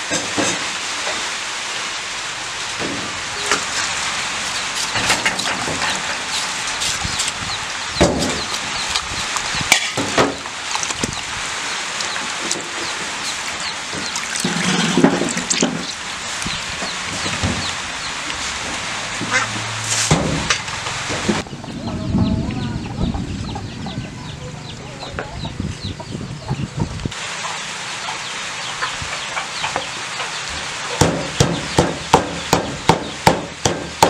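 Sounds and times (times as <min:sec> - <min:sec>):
water splashing in plastic basin: 0:08.4 - 0:21.4.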